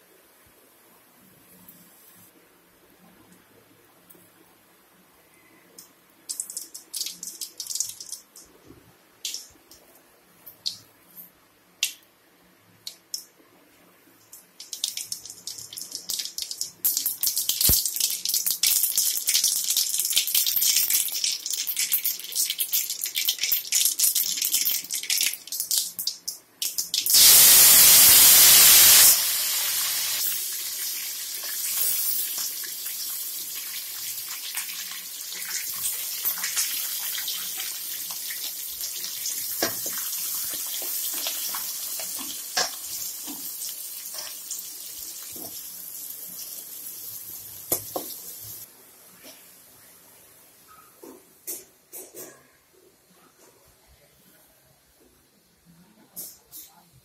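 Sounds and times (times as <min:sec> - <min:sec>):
oil popping and sizzling: 0:06.3 - 0:08.6, 0:09.2 - 0:09.8, 0:14.2 - 0:48.7
loud burst of sizzling: 0:27.0 - 0:45.4.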